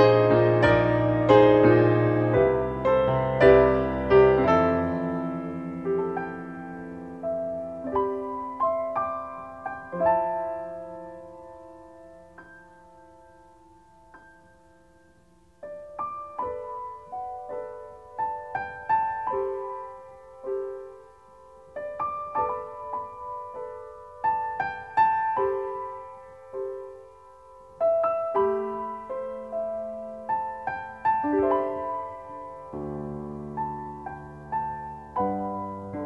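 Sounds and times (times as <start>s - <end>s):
gentle piano melody: 0.0s - 36.0s.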